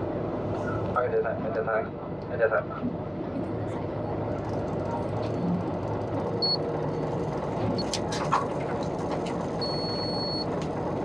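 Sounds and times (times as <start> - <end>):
boat engine hum: 0.0 - 11.0
wind: 0.0 - 11.0
high electronic beep: 9.6 - 10.4.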